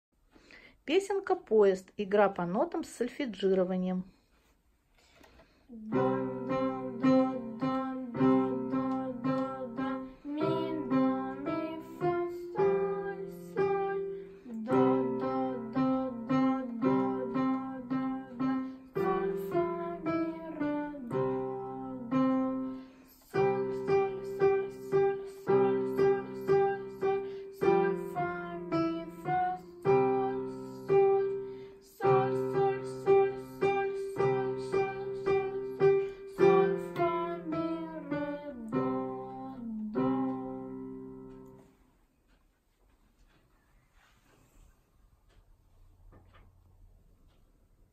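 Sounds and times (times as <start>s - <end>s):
child singing: 5.8s - 41.3s
electronic keyboard melody: 5.9s - 41.6s.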